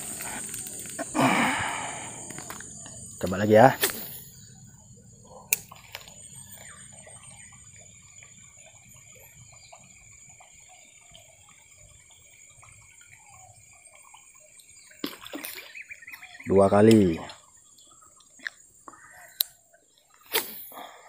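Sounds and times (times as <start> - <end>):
small water splashes: 6.5 - 19.2.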